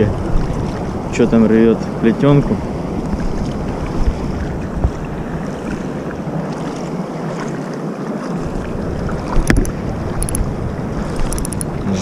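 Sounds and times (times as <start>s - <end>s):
water lapping at riverbank: 0.0s - 12.0s
wind buffeting microphone: 0.0s - 12.0s.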